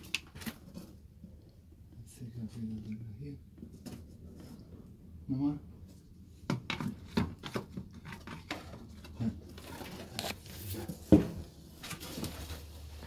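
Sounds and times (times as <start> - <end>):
plant pots clicking and scraping: 0.0 - 1.3, 6.5 - 13.0.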